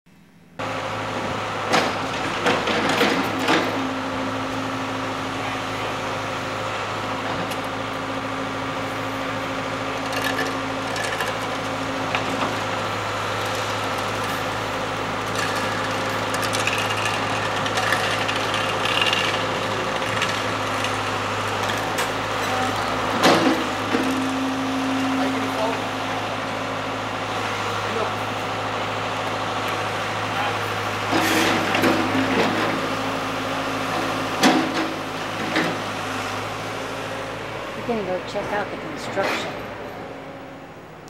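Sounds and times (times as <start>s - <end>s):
construction machinery idling: 0.1s - 41.0s
loud clatter: 15.2s - 22.2s.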